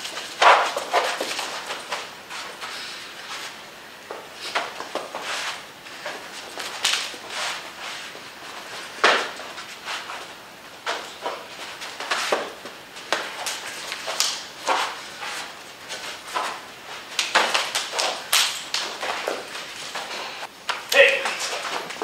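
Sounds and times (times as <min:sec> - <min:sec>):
shuffling footsteps: 0:00.0 - 0:22.0
slaps and thuds of sparring: 0:00.1 - 0:02.0, 0:09.0 - 0:09.4, 0:15.9 - 0:19.6.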